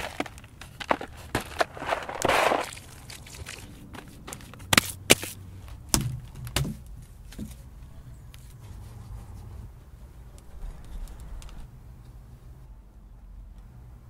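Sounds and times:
hands scooping crushed rock: 0.0 - 3.7
clay knocks and thuds: 5.9 - 7.6.

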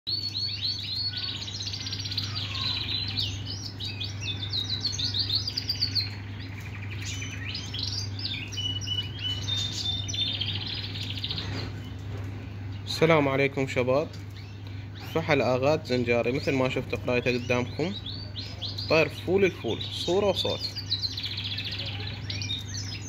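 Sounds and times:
canary singing: 0.1 - 23.0
steady low hum: 0.1 - 23.0.

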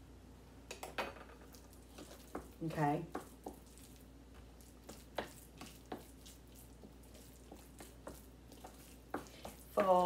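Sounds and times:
utensil tapping bowl: 0.7 - 3.8, 6.8 - 10.0
utensil mashing soft food in bowl: 1.5 - 10.0.

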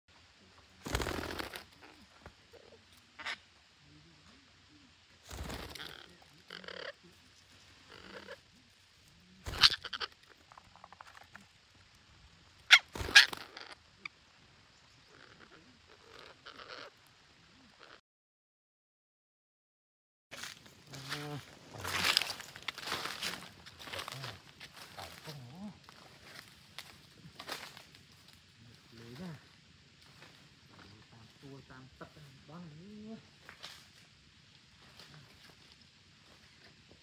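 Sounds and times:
parakeets squawking: 3.2 - 3.5, 5.3 - 8.5, 9.4 - 10.4, 12.7 - 13.9, 15.1 - 17.0.

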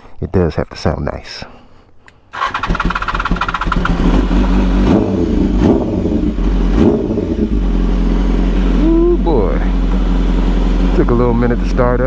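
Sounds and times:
motorcycle starter cranking: 2.3 - 4.4
motorcycle engine throttle blips: 2.4 - 12.0.

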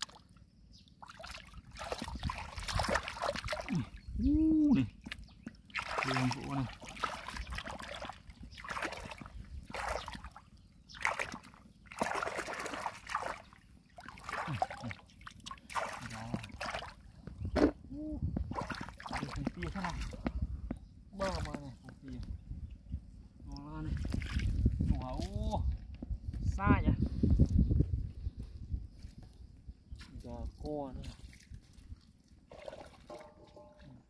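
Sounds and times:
shallow water splashing: 0.0 - 0.4, 1.0 - 4.1, 4.7 - 17.2, 18.4 - 20.4, 31.0 - 34.0.

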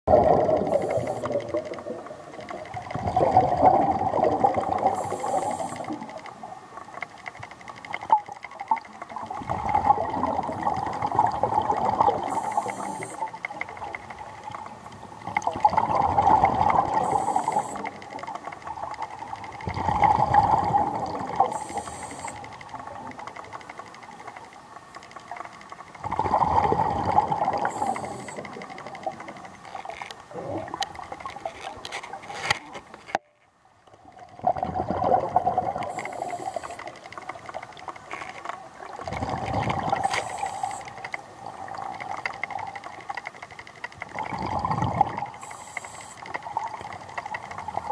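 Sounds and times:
gurgling regulator bubbles: 0.1 - 33.1, 33.8 - 47.9
regulator hiss: 4.8 - 6.0, 12.2 - 13.4, 16.9 - 18.0, 21.4 - 22.6, 27.6 - 28.5, 35.9 - 37.0, 40.0 - 41.4, 45.4 - 46.4.

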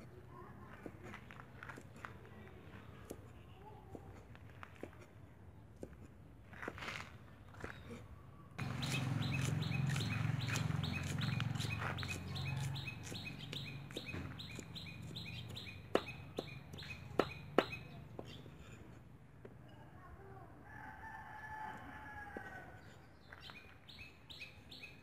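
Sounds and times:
cleaver chopping on wooden block: 8.6 - 18.4.

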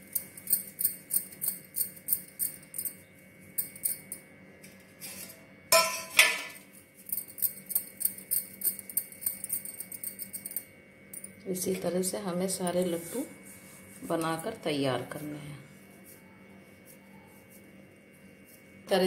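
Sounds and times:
glass bangles clinking: 0.0 - 4.3, 7.0 - 11.4.

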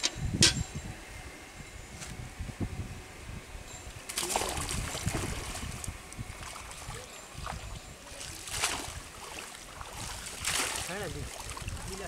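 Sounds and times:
water splashing and dripping: 4.1 - 12.0.

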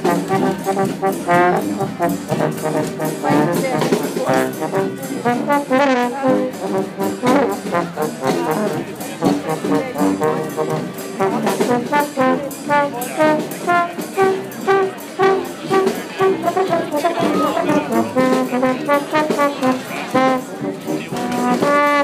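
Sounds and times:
steady beat: 0.0 - 22.0
trombones: 0.0 - 22.0
trumpet: 0.0 - 22.0.

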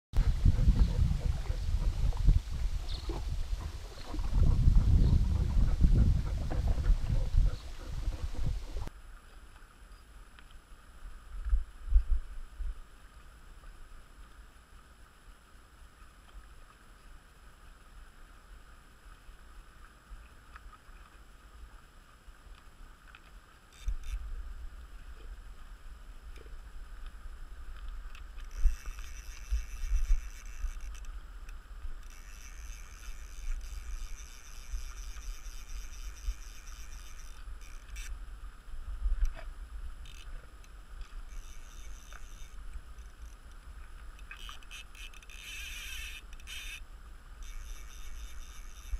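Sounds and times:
wind on microphone: 0.2 - 8.9.

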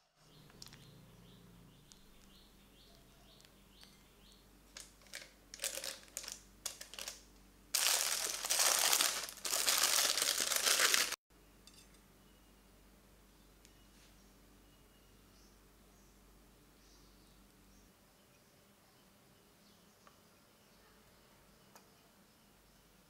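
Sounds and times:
plastic piping bag crinkling: 4.8 - 11.2.

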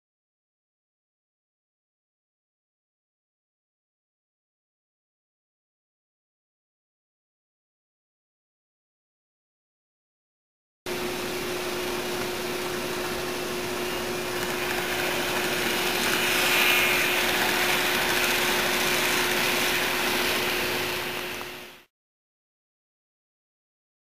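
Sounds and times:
constant hum: 10.9 - 21.8
model train whirring: 10.9 - 21.9.

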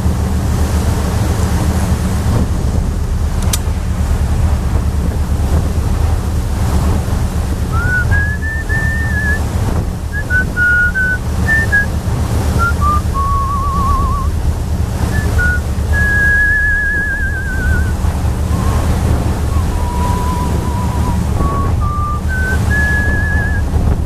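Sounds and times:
boat engine rumble: 0.0 - 24.0
wind on microphone: 0.0 - 24.0
person whistling a tune: 7.7 - 9.4, 10.2 - 11.9, 12.6 - 14.3, 15.1 - 18.8, 19.5 - 23.7.

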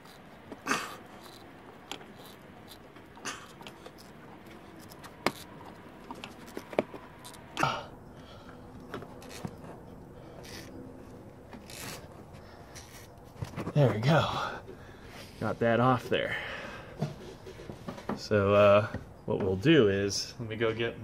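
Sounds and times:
rubber hose scraping on pipe: 0.0 - 7.5, 9.1 - 14.2
faint steady hum: 0.0 - 21.0.

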